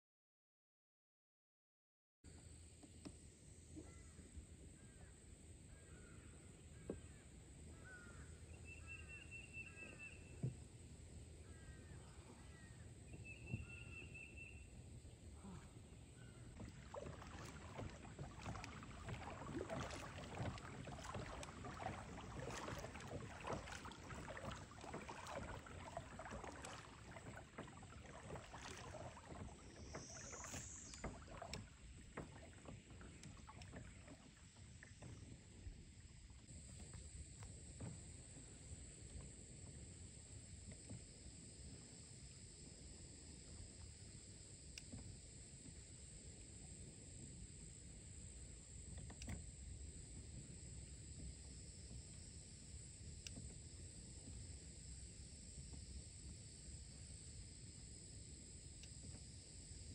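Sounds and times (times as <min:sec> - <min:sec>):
faint river ambience: 0:02.3 - 0:59.9
water splashes and drips: 0:16.5 - 0:38.0.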